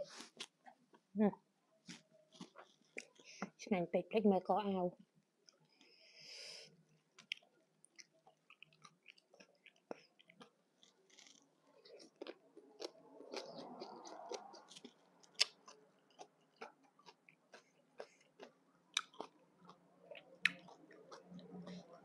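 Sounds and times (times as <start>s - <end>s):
wet chewing and mouth smacks: 7.2s - 22.0s.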